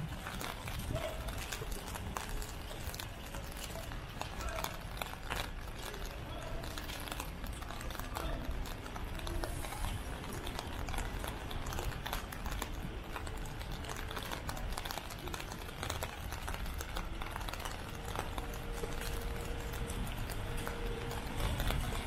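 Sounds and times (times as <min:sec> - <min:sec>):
footsteps on wet pavement: 0:00.0 - 0:22.0.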